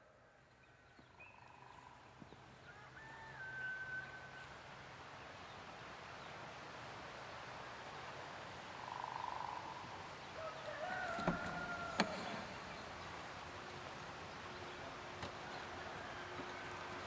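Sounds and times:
rooster crowing: 2.6s - 4.5s, 10.4s - 12.7s, 15.4s - 17.0s.

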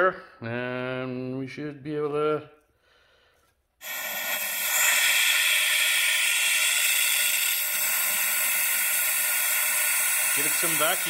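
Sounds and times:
compressed air hissing: 3.8s - 11.0s.

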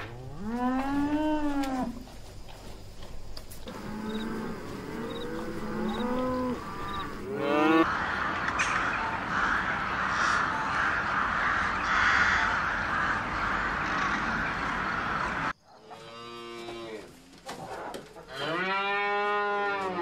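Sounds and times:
cattle mooing: 3.7s - 7.9s, 18.3s - 20.0s
flock of birds calling: 3.7s - 15.5s.

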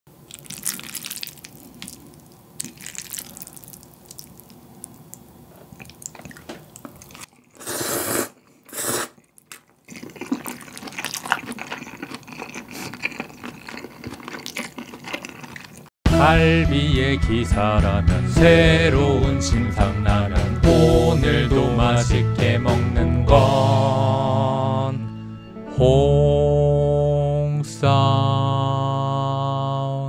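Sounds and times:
wet chewing: 0.2s - 15.9s
slurping noodles: 5.5s - 15.9s.

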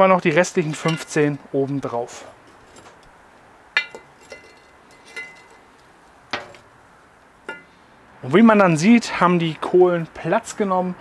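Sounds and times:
tongs clinking on metal lid: 3.8s - 5.6s.

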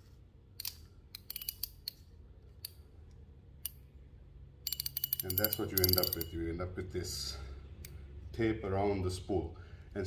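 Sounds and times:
fishing reel handling clicks: 0.6s - 2.0s, 4.7s - 6.3s
fast ratchet clicks: 4.7s - 6.3s.

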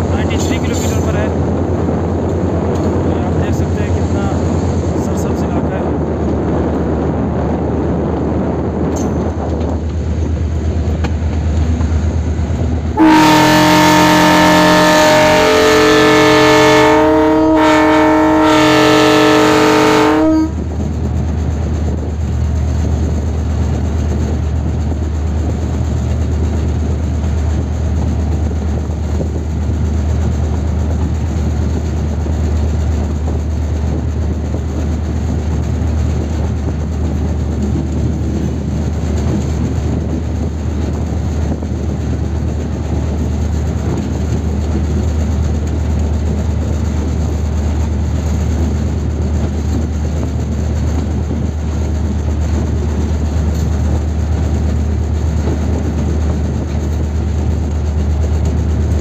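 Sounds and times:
heavy diesel engine drone: 0.0s - 21.4s
wheels rumbling on rails: 0.0s - 59.0s.

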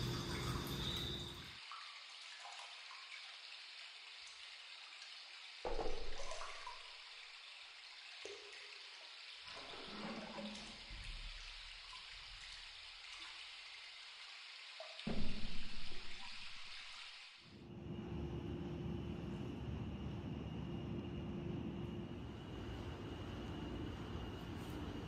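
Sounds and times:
water pouring into a bath: 0.0s - 17.6s.

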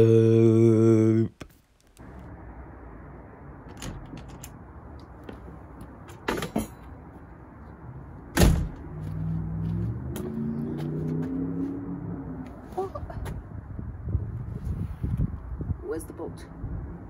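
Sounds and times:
door banging: 3.7s - 4.6s, 8.3s - 8.8s
door clicks: 3.7s - 4.6s.

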